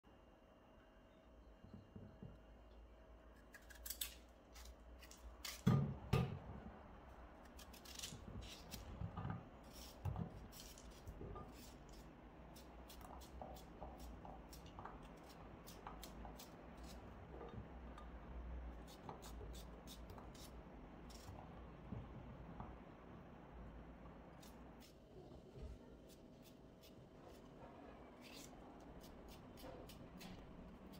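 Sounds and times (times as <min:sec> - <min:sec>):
knife cutting potatoes: 0:03.4 - 0:05.8, 0:07.5 - 0:09.0, 0:09.6 - 0:17.2, 0:18.8 - 0:21.4, 0:28.2 - 0:30.9.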